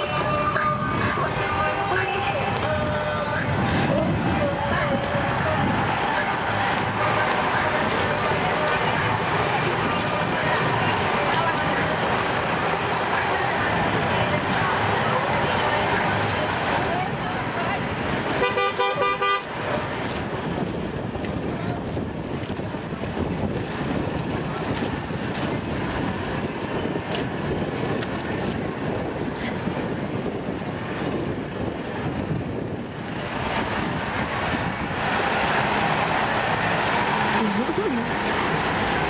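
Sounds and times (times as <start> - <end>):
outdoor street noise: 0.0 - 39.0
car horn honking: 18.4 - 19.6.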